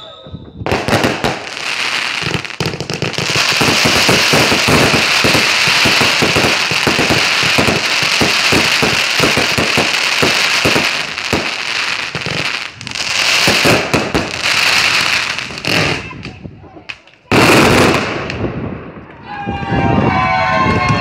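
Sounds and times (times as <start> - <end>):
firework bangs: 0.2 - 19.2
fast string of firework shots: 0.6 - 16.1.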